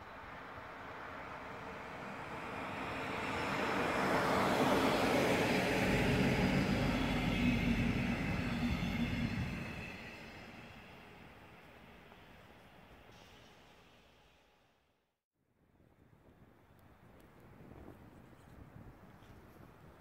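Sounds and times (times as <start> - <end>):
train rumble and hum: 0.0 - 14.2
train wheels rushing on rails: 0.1 - 14.4.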